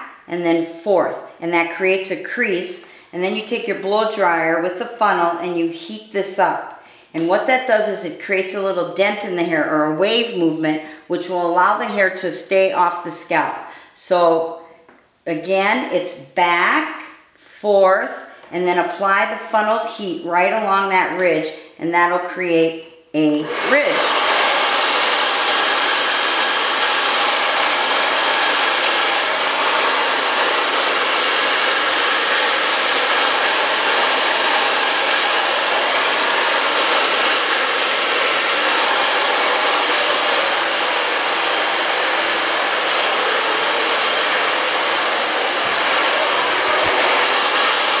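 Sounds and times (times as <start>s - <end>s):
blow dryer running: 23.4s - 48.0s.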